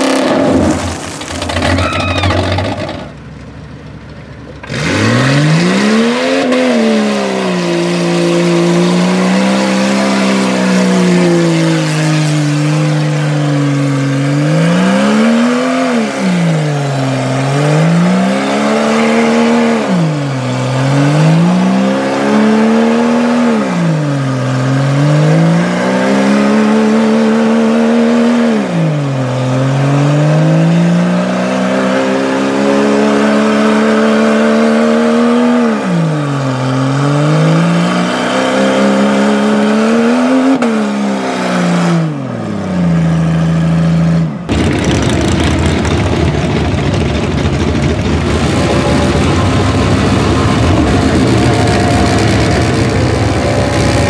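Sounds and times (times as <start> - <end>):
car engine revving: 0.0 - 3.2, 4.6 - 54.0
tyres churning through mud: 4.6 - 23.5, 44.5 - 54.0
atv engine running: 44.5 - 54.0.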